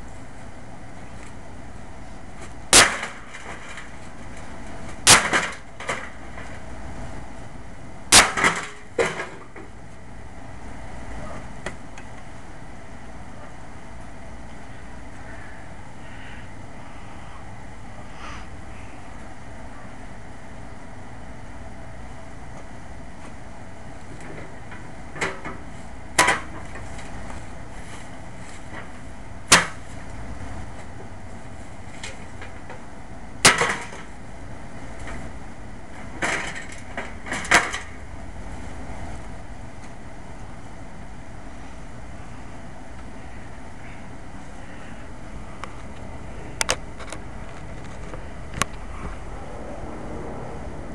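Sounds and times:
axe striking sheet metal: 0:02.7 - 0:03.8, 0:05.0 - 0:06.1, 0:08.1 - 0:09.4, 0:29.5 - 0:29.8, 0:33.4 - 0:34.0.

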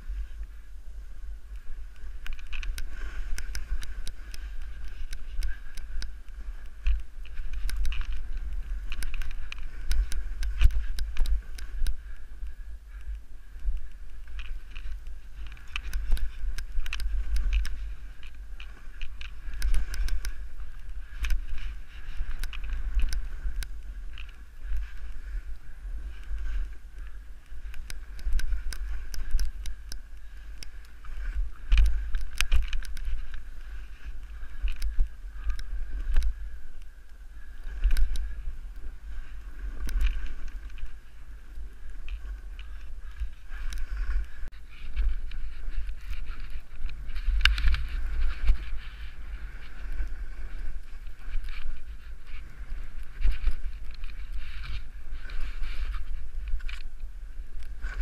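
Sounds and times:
wind buffeting microphone: 0:00.0 - 0:58.0
small clicks and knocks: 0:01.5 - 0:12.0, 0:13.0 - 0:25.2, 0:26.1 - 0:36.9, 0:37.6 - 0:38.4, 0:41.9 - 0:48.9.

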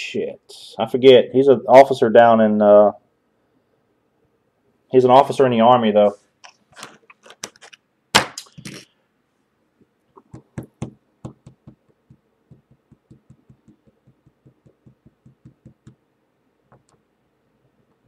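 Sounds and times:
trading cards tapping on desk: 0:10.2 - 0:16.0
sharp knock: 0:10.3 - 0:16.0.

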